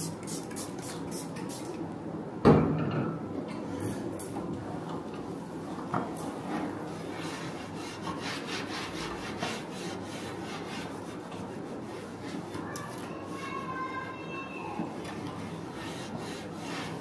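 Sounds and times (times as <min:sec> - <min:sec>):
hands rubbing rattan chair: 0:14.8 - 0:17.0.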